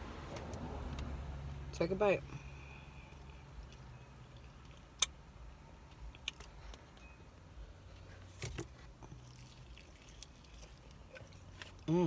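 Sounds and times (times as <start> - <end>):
low hum inside a car: 0.0 - 12.0
person chewing: 3.0 - 5.1, 9.0 - 12.0.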